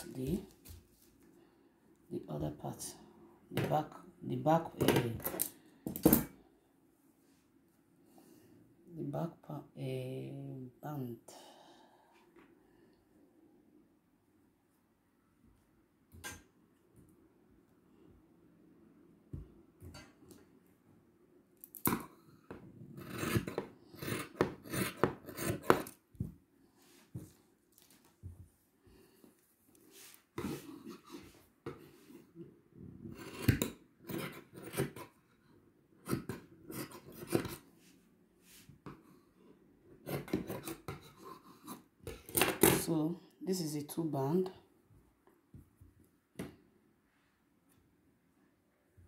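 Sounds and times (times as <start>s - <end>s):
scissors snipping fabric: 23.0s - 26.0s.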